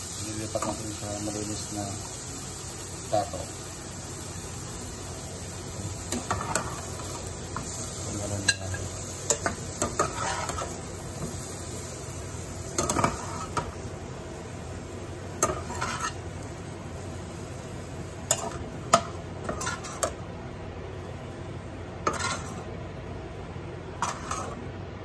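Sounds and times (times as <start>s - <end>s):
faint pan sizzle: 0.0s - 24.9s
spatula scraping a pan: 6.1s - 7.8s, 8.4s - 11.4s, 12.7s - 13.7s, 15.4s - 16.2s, 19.4s - 20.2s, 22.0s - 22.7s, 24.0s - 24.6s.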